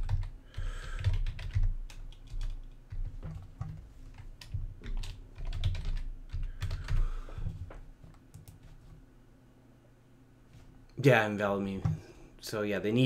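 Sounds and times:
keyboard typing: 0.0 - 7.2, 8.1 - 8.8.

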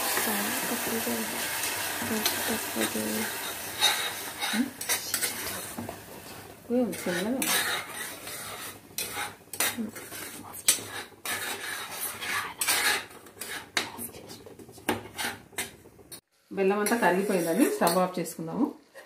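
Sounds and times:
metal spoon scraping pan: 2.1 - 6.0, 6.7 - 15.8.

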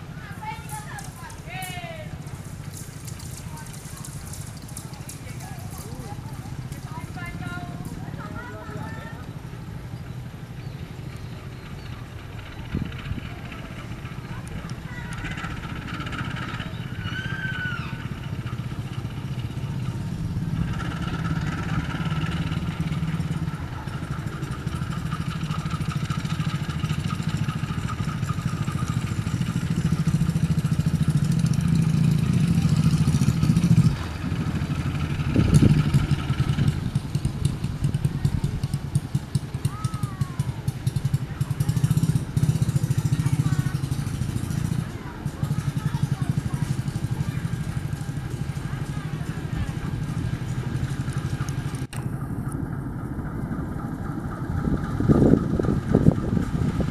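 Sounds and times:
diesel locomotive engine rumble: 0.0 - 56.9
bird chirps: 9.9 - 12.2.

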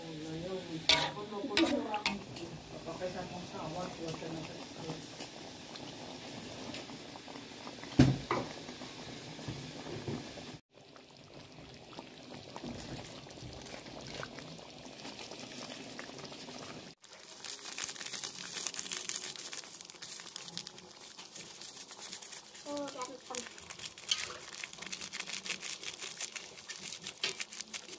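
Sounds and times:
spatula knocking wok: 0.9 - 2.2
sauce simmering and bubbling: 1.7 - 27.9.

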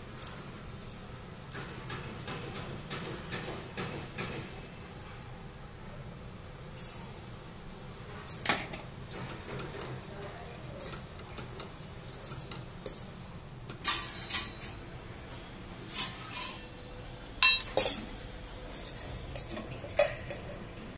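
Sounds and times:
steel spoon scraping a pan: 12.0 - 13.2, 15.9 - 16.8, 17.4 - 20.7.

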